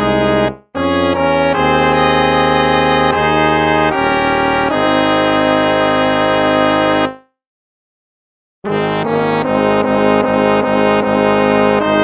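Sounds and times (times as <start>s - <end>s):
instrumental hymn chords: 0.0s - 7.3s, 8.7s - 12.0s.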